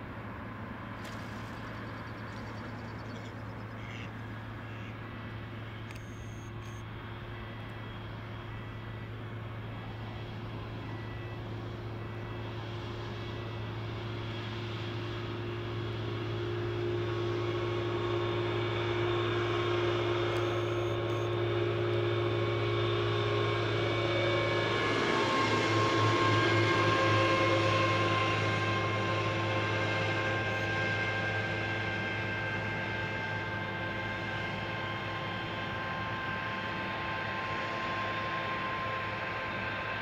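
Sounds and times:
jet engines whining: 0.0 - 40.0.

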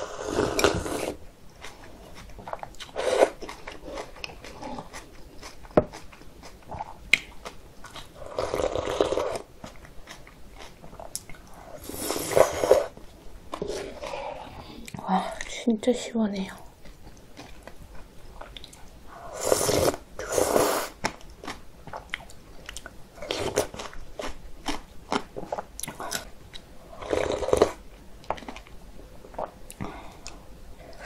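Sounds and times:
person slurping noodle broth: 0.0 - 1.2, 3.0 - 3.4, 8.2 - 9.4, 11.7 - 12.9, 19.2 - 21.0
wet chewing: 1.6 - 12.6.

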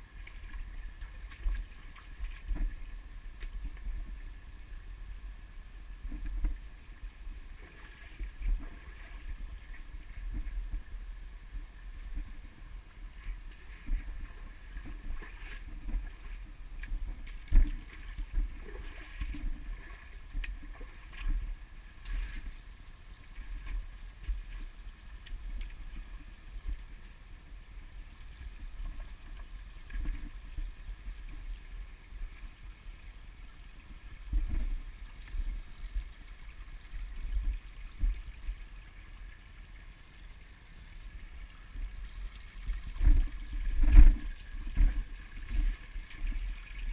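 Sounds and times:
stream trickling: 0.0 - 46.9
wind rumble on microphone: 0.0 - 46.9
footsteps splashing in water: 0.2 - 3.8, 13.3 - 22.6, 42.8 - 46.9.

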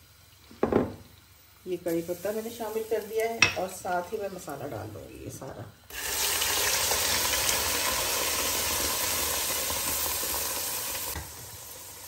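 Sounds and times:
paste sizzling in hot oil: 1.2 - 4.5, 5.8 - 12.0.

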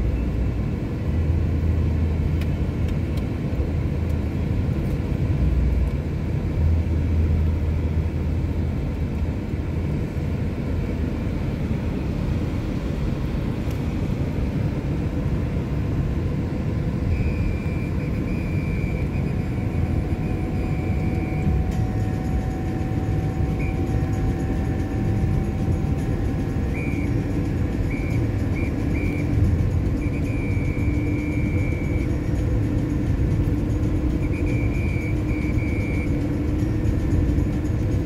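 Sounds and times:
tyres rumbling on asphalt: 0.0 - 38.0.

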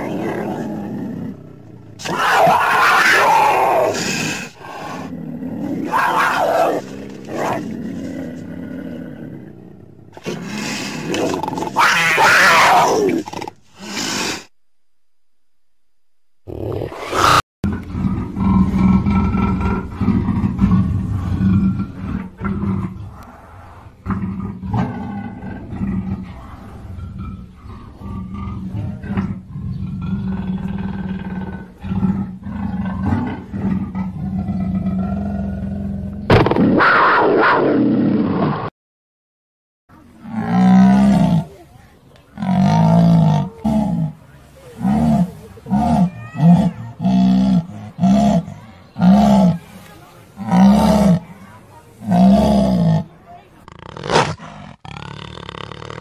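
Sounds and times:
panther growling roars: 0.0 - 13.5, 42.4 - 49.7, 50.4 - 56.0.

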